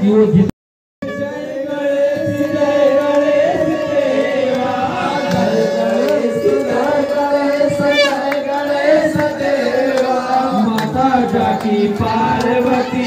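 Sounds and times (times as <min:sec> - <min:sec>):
held drone note: 0:01.0 - 0:10.6
devotional singing: 0:01.0 - 0:13.0.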